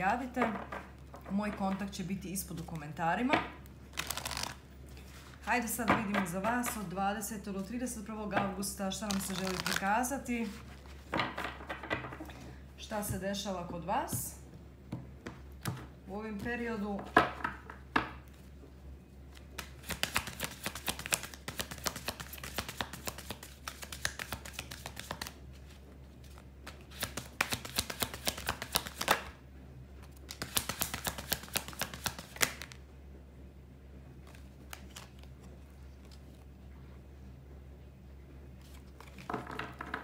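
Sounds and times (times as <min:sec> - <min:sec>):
deck of cards shuffling: 0:00.5 - 0:03.0, 0:03.9 - 0:05.8, 0:08.9 - 0:11.2, 0:19.3 - 0:29.3, 0:30.0 - 0:32.8, 0:34.2 - 0:36.5, 0:38.6 - 0:40.0
cards knocking: 0:39.0 - 0:40.0.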